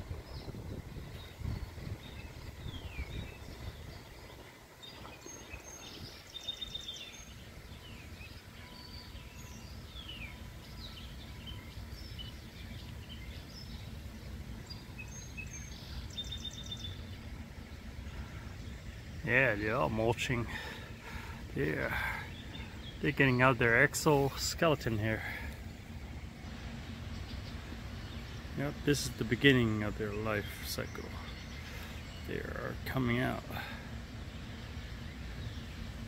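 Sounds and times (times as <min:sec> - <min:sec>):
low rumble of street traffic: 0:00.0 - 0:36.0
songbird chirps and calls: 0:00.0 - 0:36.0
bird trilling call: 0:01.1 - 0:14.0, 0:14.6 - 0:19.2.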